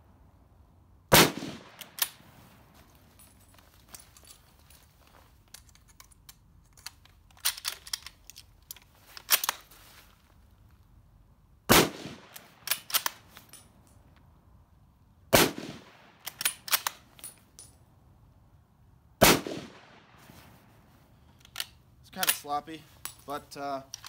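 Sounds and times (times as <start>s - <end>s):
rifle shots: 1.1s - 2.2s, 11.7s - 13.1s, 15.3s - 16.8s, 19.2s - 20.2s
metallic clacks of rifle bolt: 1.7s - 10.3s, 12.2s - 14.4s, 16.2s - 17.8s, 21.1s - 24.0s.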